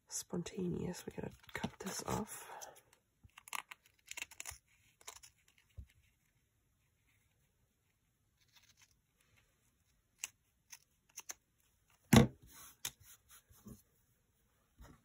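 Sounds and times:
cards knocking and sliding: 10.2 - 13.2.

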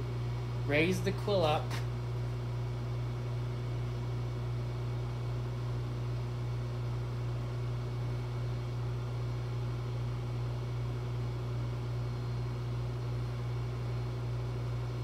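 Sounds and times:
shop machinery humming: 0.0 - 5.3.

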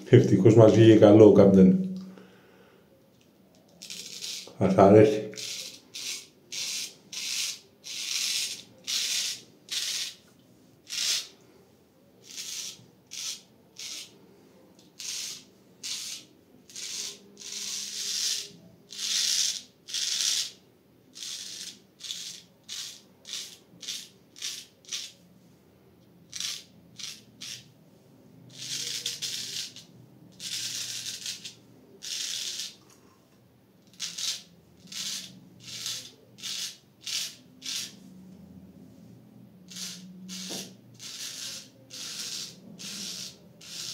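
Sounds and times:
razor scraping stubble: 3.8 - 11.4, 12.2 - 14.2, 14.9 - 20.6, 26.3 - 27.7, 28.5 - 33.1, 33.9 - 38.1, 39.7 - 43.9.

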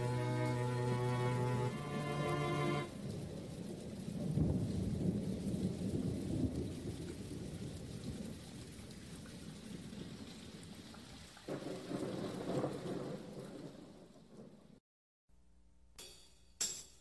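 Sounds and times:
music: 0.0 - 2.9
thunder rumbling: 0.0 - 10.9, 11.5 - 14.8
steady rain: 0.0 - 14.8.

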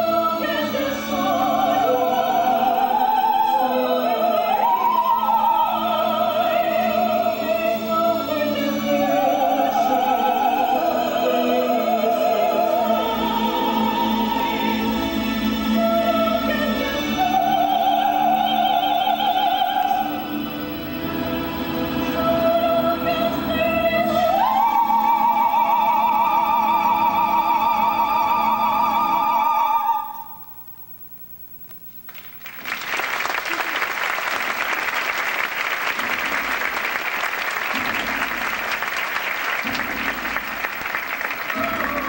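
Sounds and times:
audience applauding: 32.1 - 42.0.

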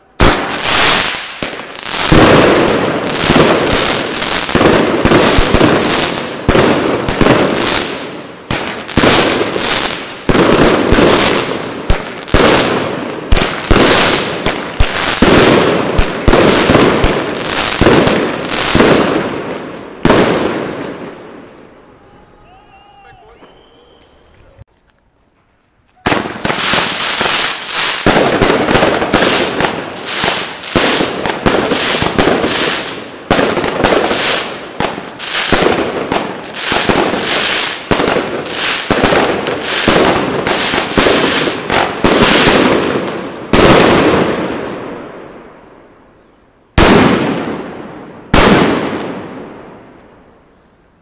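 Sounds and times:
firework bangs: 0.0 - 21.6, 26.0 - 45.4, 46.7 - 50.3.

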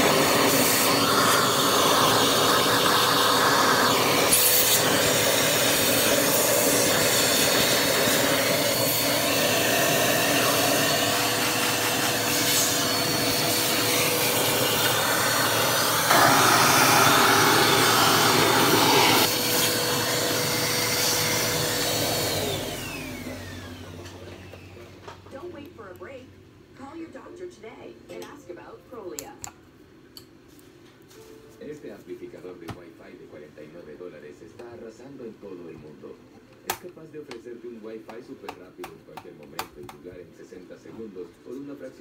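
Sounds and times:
vacuum cleaner whining: 0.0 - 25.2.

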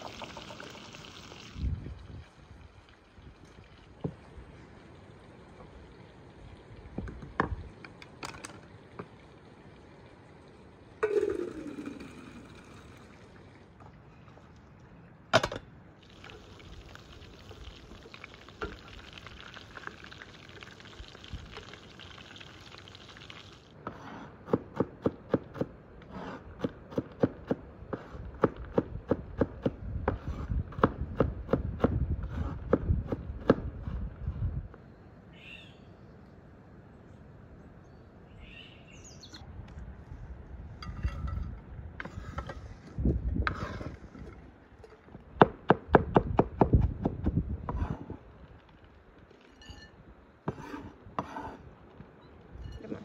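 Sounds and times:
faint bird chirps: 34.9 - 36.2, 37.8 - 39.4.

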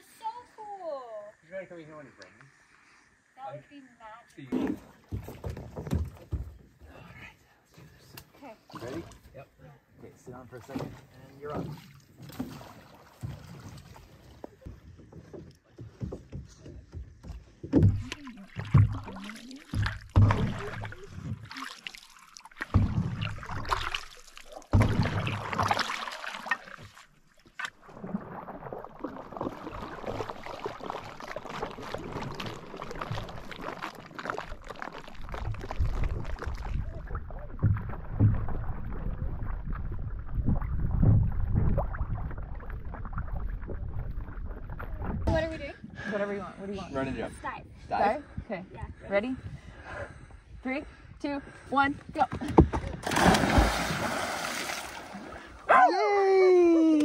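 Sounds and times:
water splashes: 8.3 - 15.4, 17.4 - 46.1, 52.2 - 57.0
water wash: 17.8 - 45.4, 53.0 - 55.6.

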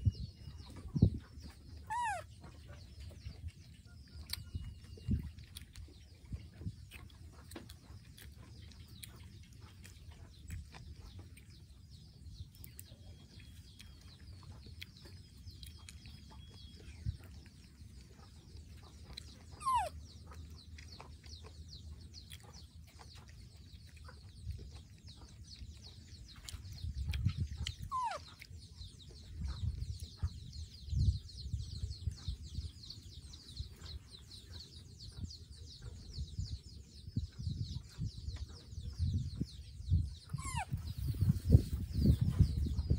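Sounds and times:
faint animal calls: 1.8 - 2.7, 19.1 - 20.4, 27.6 - 28.5, 40.2 - 41.0.

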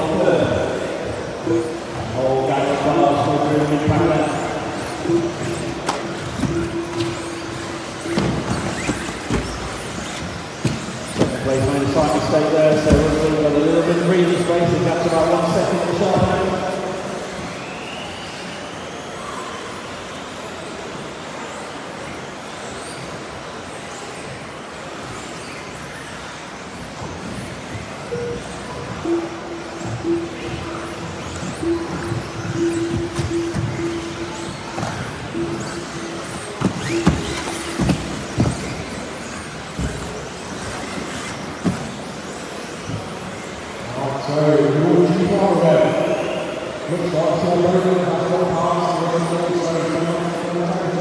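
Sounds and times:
electric motors whining: 0.0 - 51.0
rc cars racing: 0.0 - 51.0
tyre noise: 3.0 - 13.6, 29.8 - 43.2.

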